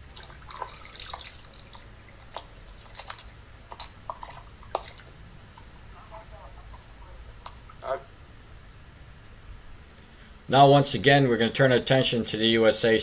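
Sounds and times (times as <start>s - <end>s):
water splashing and dripping: 0.0s - 5.9s
low steady rumble: 0.0s - 11.8s.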